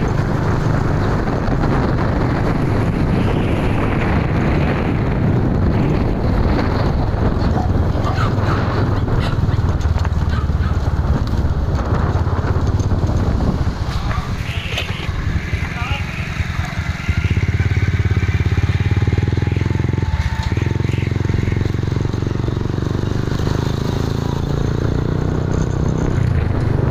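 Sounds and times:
motorcycle engine running: 0:00.0 - 0:26.9
wind rushing over microphone: 0:00.0 - 0:26.9.

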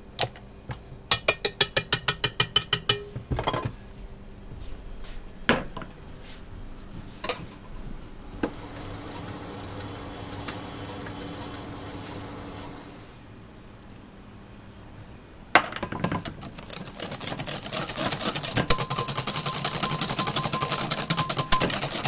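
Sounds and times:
steady kitchen hum: 0:00.0 - 0:22.0
whisk rapping on steel bowl: 0:01.1 - 0:03.0, 0:16.4 - 0:22.0.

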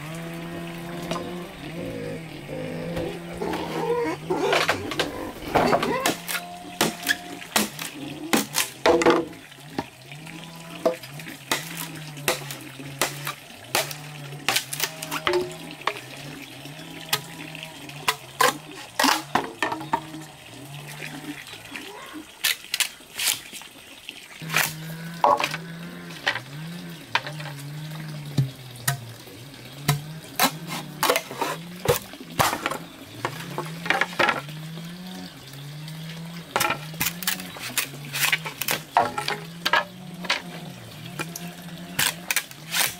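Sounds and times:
low pulsing hum: 0:00.0 - 0:08.3
machete splitting bamboo: 0:06.0 - 0:09.3, 0:11.4 - 0:15.6, 0:36.6 - 0:39.8, 0:42.0 - 0:42.9.

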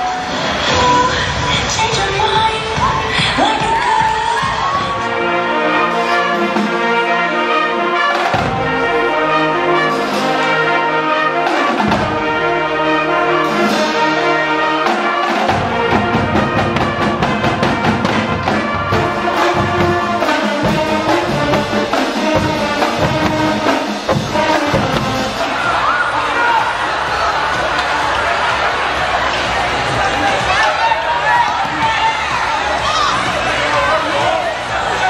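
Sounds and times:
marching band playing: 0:00.0 - 0:35.0
bass drum strokes: 0:15.4 - 0:27.8.

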